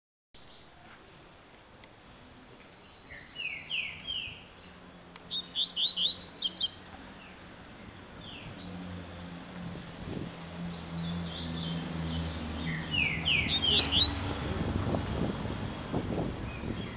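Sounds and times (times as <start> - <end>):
seedeater bird singing: 2.2 - 7.5, 8.2 - 9.0, 10.6 - 15.3, 16.4 - 16.9.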